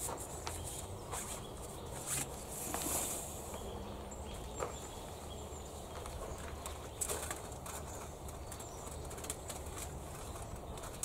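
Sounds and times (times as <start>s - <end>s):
low background noise: 0.0s - 11.0s
clicks and rustles of stove: 6.0s - 11.0s.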